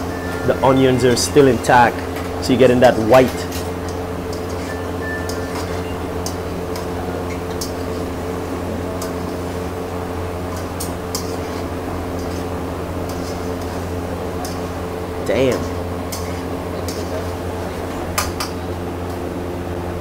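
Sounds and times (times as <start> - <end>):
steady mechanical hum: 0.0 - 20.0
metal spatula scraping wok: 4.3 - 6.8, 10.5 - 17.4.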